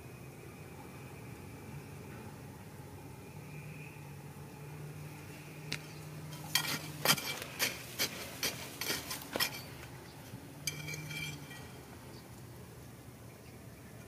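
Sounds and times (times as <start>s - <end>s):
metal tool clinking on stones: 5.8s - 11.9s
blade scraping through gravel: 6.3s - 9.9s.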